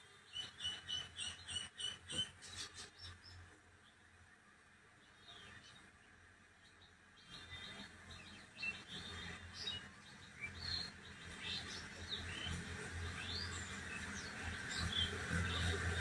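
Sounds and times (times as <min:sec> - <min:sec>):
small birds chirping: 0:05.0 - 0:16.0.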